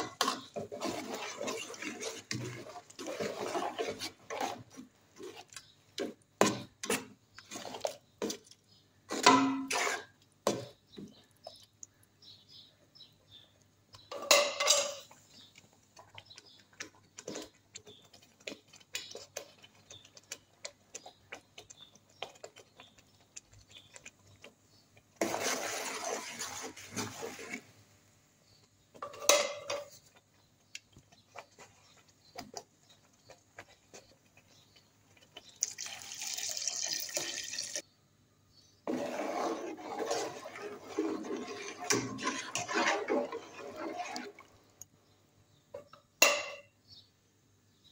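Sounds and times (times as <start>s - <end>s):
spatula scraping metal pot: 0.0s - 8.4s, 9.1s - 11.6s, 25.2s - 27.8s, 38.8s - 44.8s
stirring thick curry: 0.0s - 14.1s, 14.7s - 35.9s, 38.8s - 45.9s.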